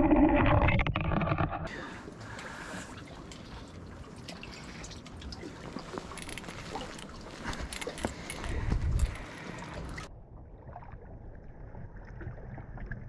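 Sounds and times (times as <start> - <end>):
water dripping and trickling: 2.2 - 10.1
small clicks and ticks: 6.0 - 9.5.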